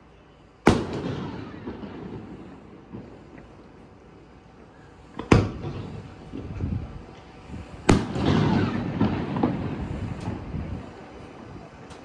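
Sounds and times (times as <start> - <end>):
rolling echo rumble: 0.0 - 12.0
firework shells bursting: 0.6 - 3.8, 5.1 - 10.6.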